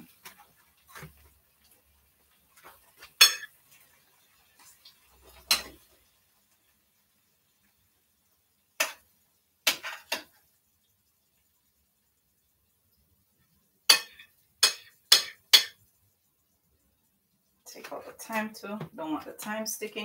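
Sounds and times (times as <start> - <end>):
utensil clinking on plate: 3.2 - 3.5, 13.9 - 15.8.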